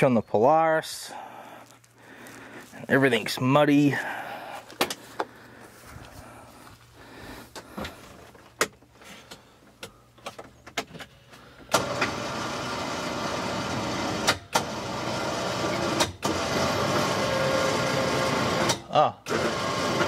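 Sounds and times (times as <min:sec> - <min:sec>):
electric winch motor running: 0:11.7 - 0:20.0.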